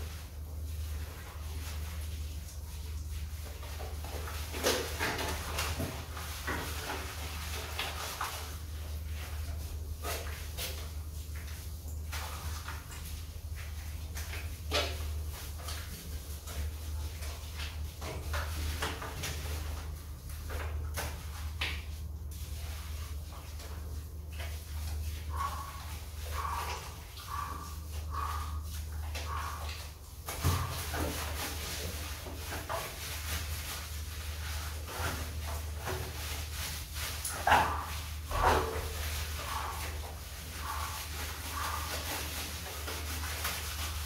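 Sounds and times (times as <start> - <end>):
wet fur being rubbed by hand: 0.0 - 44.0.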